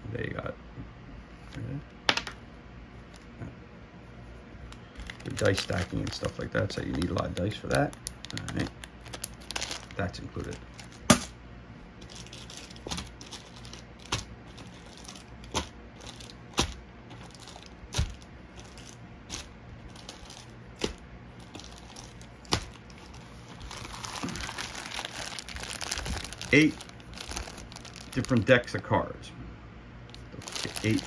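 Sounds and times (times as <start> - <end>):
plastic bags crinkling: 4.8 - 11.3, 12.0 - 28.7, 30.1 - 31.0.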